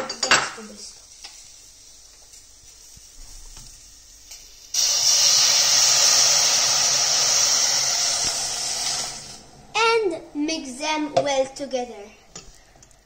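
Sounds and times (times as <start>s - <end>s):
liquid hissing in a hot pan: 0.0s - 9.5s.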